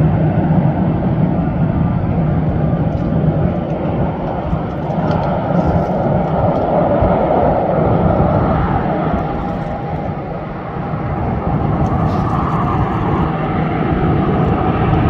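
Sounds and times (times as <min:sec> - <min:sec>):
faint hum: 0:00.0 - 0:15.0
jet engines rumbling: 0:00.0 - 0:15.0.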